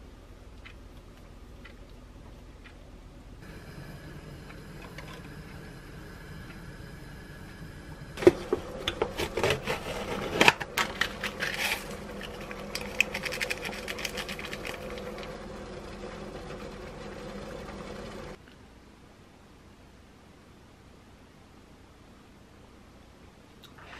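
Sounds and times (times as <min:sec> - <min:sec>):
faint steady hum: 0:00.0 - 0:23.9
foil lid crinkling: 0:09.0 - 0:15.2.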